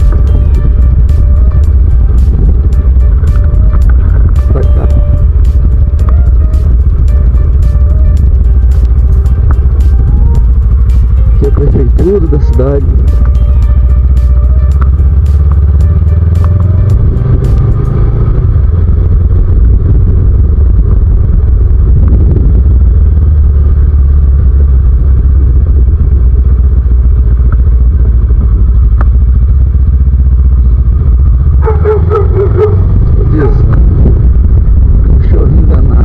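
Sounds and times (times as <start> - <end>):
wind on microphone: 0.0 - 10.7, 16.9 - 23.6, 31.6 - 36.0
sharp ticks: 0.0 - 18.1
motorcycle engine rumble: 0.0 - 36.0.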